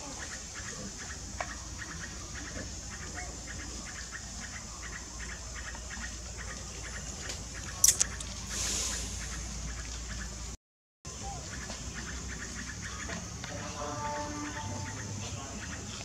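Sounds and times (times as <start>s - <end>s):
sharp clicks: 7.8s - 8.4s.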